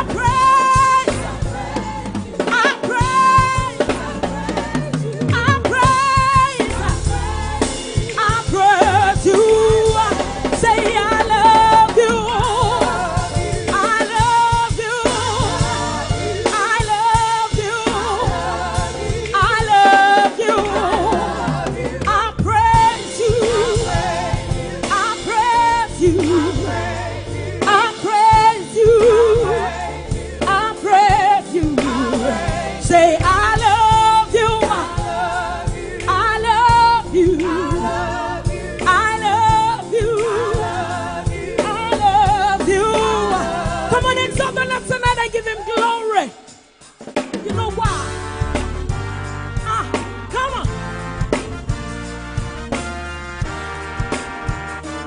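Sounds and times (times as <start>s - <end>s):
woman singing with vibrato: 0.0s - 24.3s, 24.9s - 46.5s
backing vocalists: 0.0s - 46.6s
keyboard accompaniment: 0.0s - 55.0s.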